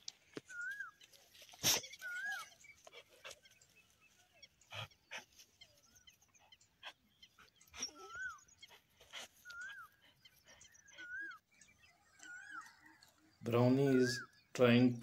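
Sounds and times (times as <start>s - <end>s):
dog whimpering: 7.7s - 8.4s.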